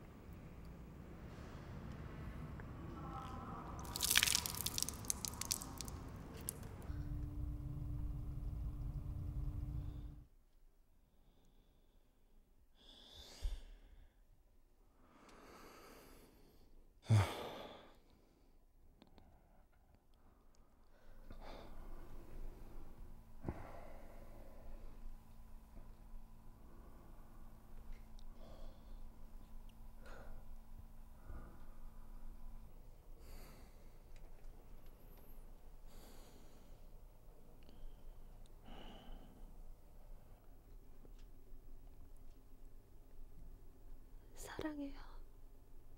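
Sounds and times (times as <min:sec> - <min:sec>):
low steady hum: 0:00.0 - 0:10.5, 0:19.0 - 0:45.9
man breathing heavily and sighing: 0:17.0 - 0:18.1
soft breaths: 0:20.9 - 0:40.9.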